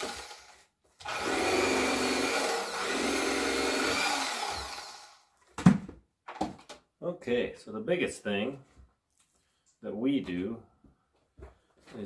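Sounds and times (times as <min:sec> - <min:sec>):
electric fillet knife whining: 0:00.0 - 0:05.3.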